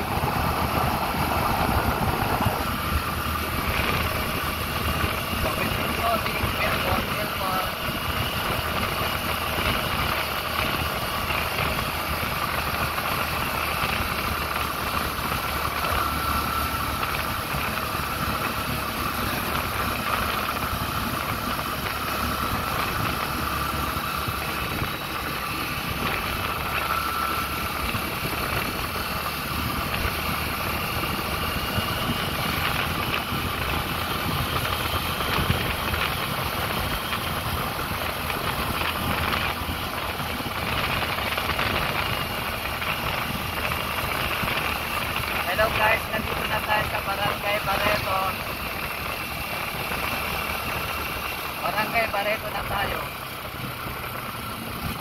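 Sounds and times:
vehicle engine running: 0.0s - 55.0s.

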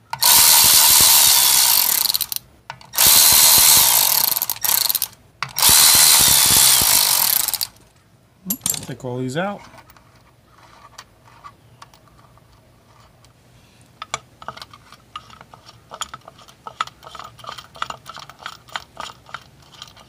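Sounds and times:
metal nuts and washers clinking: 8.4s - 9.0s.

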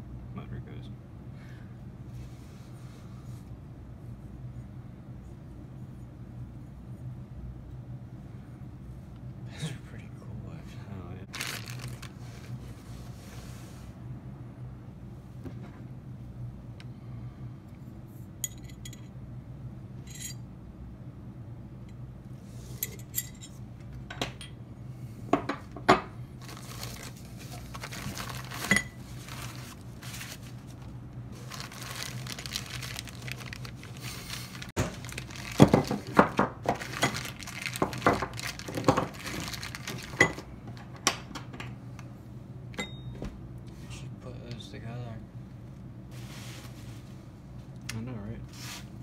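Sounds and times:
plastic bags crinkling: 11.3s - 12.4s, 26.4s - 40.4s.

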